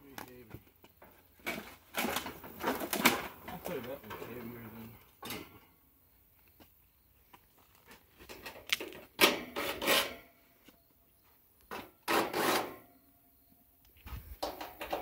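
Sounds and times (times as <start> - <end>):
tools scraping on sheet metal: 8.3 - 10.4, 11.7 - 12.9.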